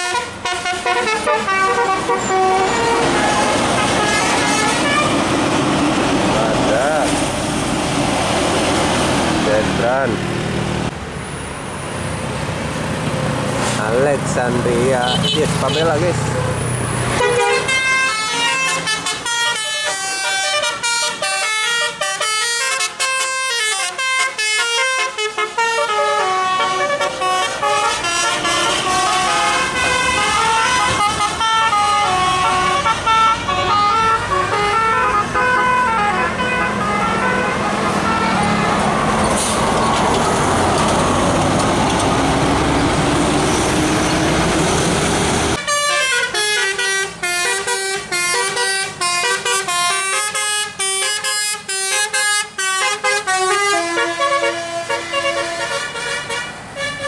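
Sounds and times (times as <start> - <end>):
musical air horns playing tunes: 0.0 - 5.2, 17.1 - 38.6, 45.6 - 57.0
bus engine passing: 0.0 - 57.0.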